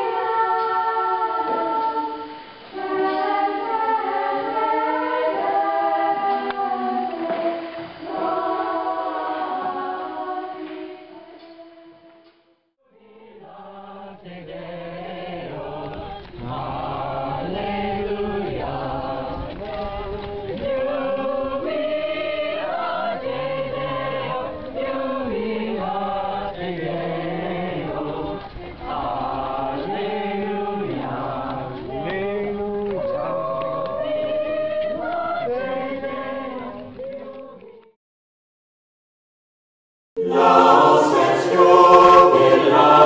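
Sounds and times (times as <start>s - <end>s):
choir singing: 0.0s - 12.1s, 12.9s - 38.0s, 40.2s - 43.0s.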